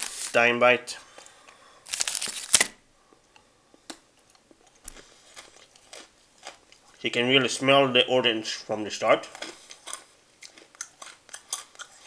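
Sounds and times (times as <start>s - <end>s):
plastic wrapper rustling: 0.0s - 0.5s, 1.8s - 2.8s
faint crunching chewing: 3.1s - 7.0s, 9.2s - 12.0s.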